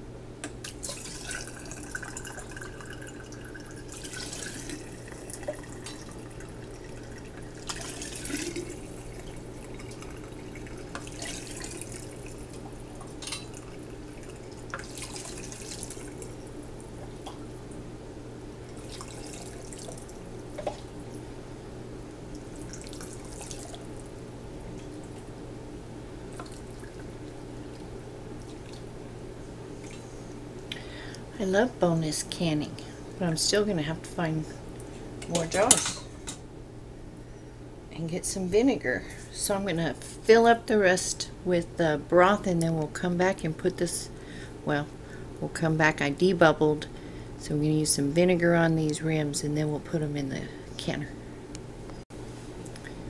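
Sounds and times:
broth pouring into a glass jar: 0:00.7 - 0:12.4, 0:18.8 - 0:20.1.

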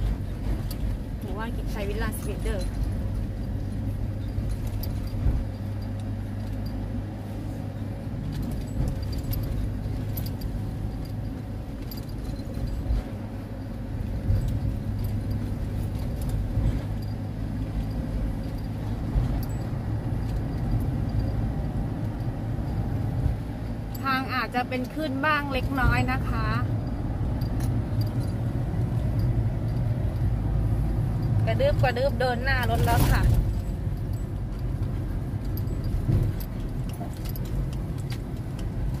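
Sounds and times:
engine and road drone: 0:00.0 - 0:39.0
keys jingling: 0:26.7 - 0:30.2.

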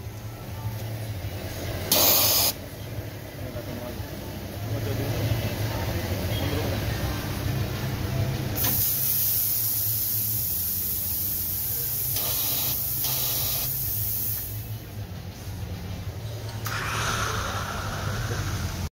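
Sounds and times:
steam hissing: 0:01.9 - 0:02.6, 0:08.6 - 0:14.7, 0:16.6 - 0:18.9
steady low hum: 0:13.8 - 0:18.9.

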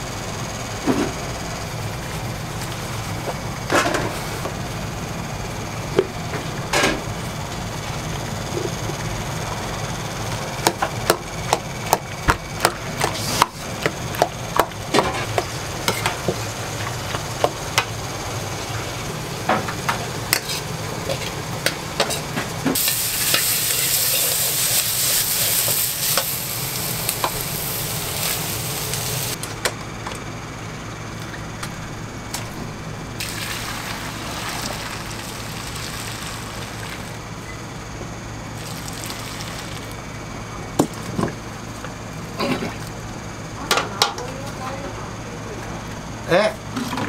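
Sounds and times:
food sizzling in a wok: 0:22.1 - 0:29.4, 0:33.2 - 0:37.4, 0:38.6 - 0:40.0.

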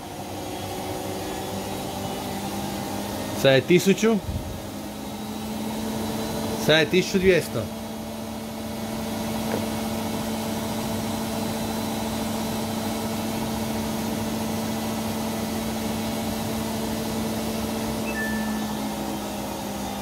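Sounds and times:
washing machine spinning: 0:07.7 - 0:20.0.

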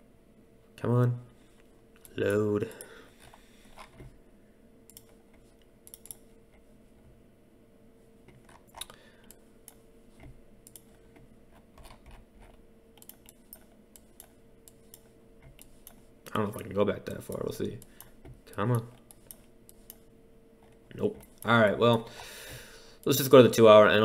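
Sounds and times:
faint steady hum: 0:00.0 - 0:24.0
keyboard and mouse clicking: 0:04.9 - 0:06.3, 0:10.6 - 0:11.0, 0:11.8 - 0:16.0.

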